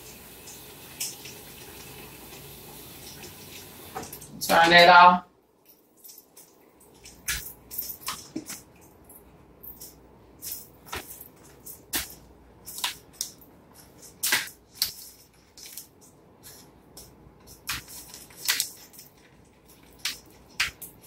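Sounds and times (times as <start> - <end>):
plastic wrapping crinkling: 9.7 - 21.0.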